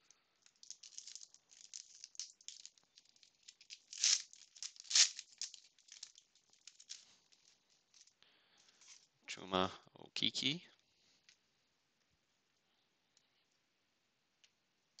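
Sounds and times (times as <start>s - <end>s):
foil wrapper crinkling: 0.4s - 8.1s
foil ripping: 0.6s - 7.0s.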